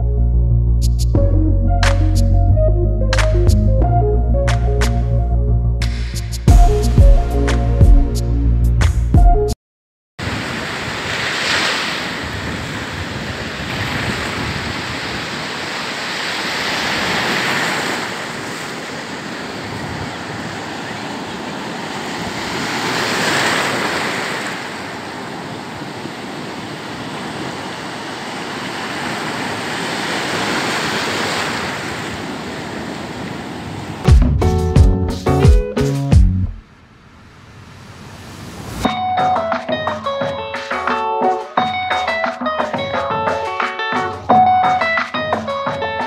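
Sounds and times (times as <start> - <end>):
ocean surf breaking: 10.2 - 34.1, 36.7 - 46.0.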